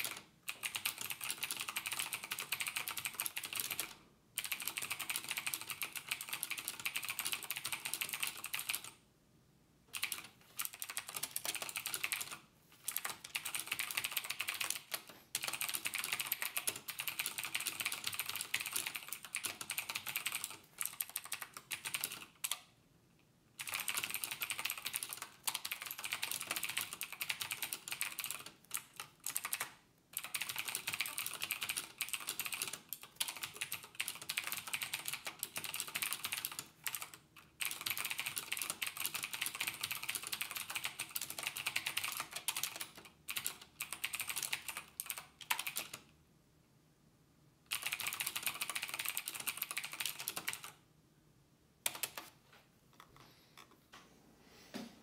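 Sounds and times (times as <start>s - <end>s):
typing on a computer keyboard: 0.0s - 9.0s, 9.9s - 22.7s, 23.6s - 46.1s, 47.7s - 50.8s, 51.8s - 52.4s.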